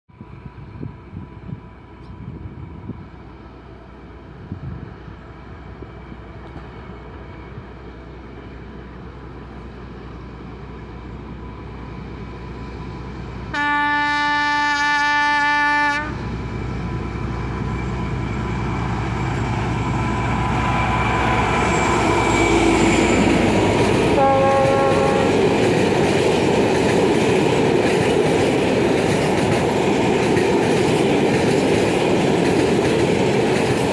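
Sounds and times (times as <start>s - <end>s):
diesel locomotive hauling freight: 0.1s - 33.9s
train horn blast: 13.5s - 16.2s, 21.7s - 25.4s.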